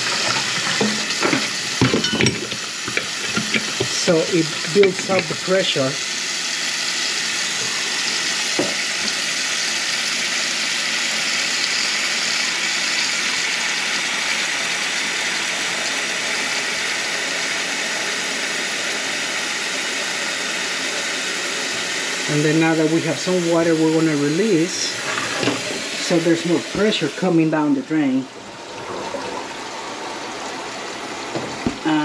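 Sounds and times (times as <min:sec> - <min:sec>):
faucet running into steel sink: 0:00.0 - 0:32.0.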